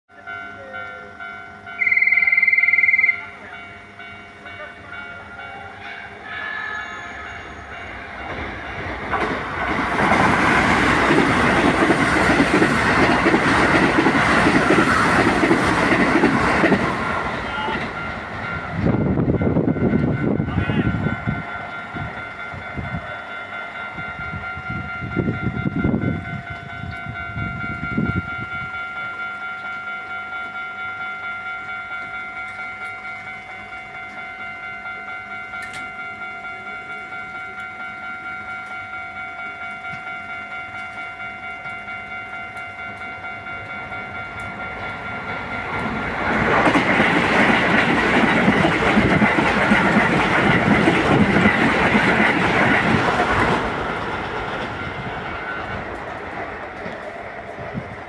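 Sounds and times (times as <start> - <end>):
level crossing bell clanging: 0.1 - 8.9, 13.7 - 52.5
train wheels clattering on rails: 7.8 - 20.5, 21.3 - 58.0.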